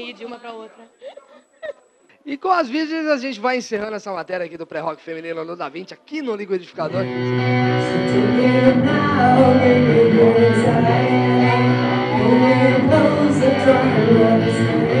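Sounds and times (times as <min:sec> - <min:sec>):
live rock band: 0:07.0 - 0:15.0
woman singing: 0:07.8 - 0:15.0.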